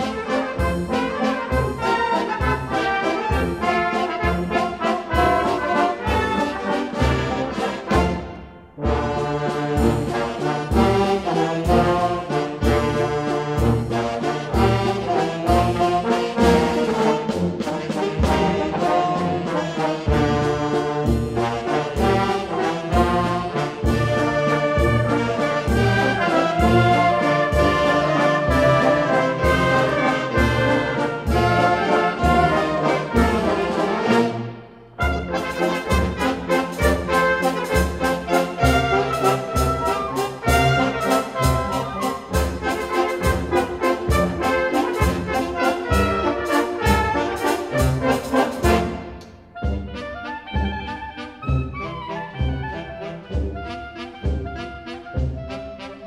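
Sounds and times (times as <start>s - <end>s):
brass band playing a waltz: 0.0s - 56.0s.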